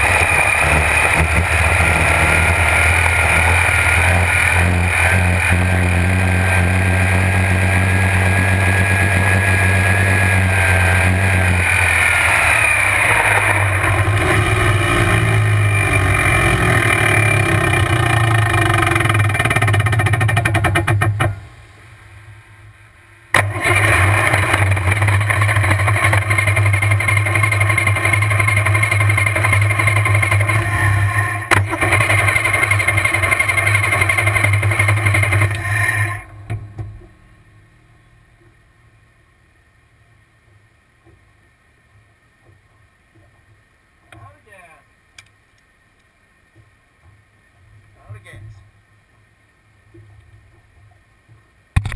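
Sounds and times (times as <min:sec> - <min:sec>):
high blower whine: 0:00.0 - 0:21.6, 0:23.3 - 0:37.6
drag boat engine running: 0:00.0 - 0:45.1.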